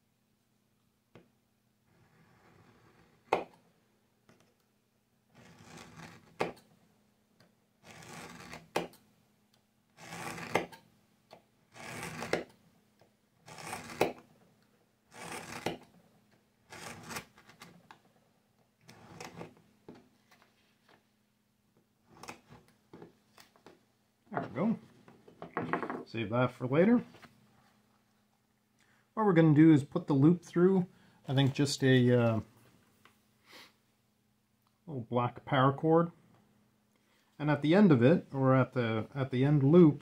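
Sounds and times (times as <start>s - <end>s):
knife scraping through leather: 5.4s - 6.6s, 7.8s - 8.8s, 10.0s - 10.7s, 11.7s - 12.5s, 13.4s - 14.3s, 15.1s - 15.8s, 16.7s - 17.7s, 18.9s - 19.6s.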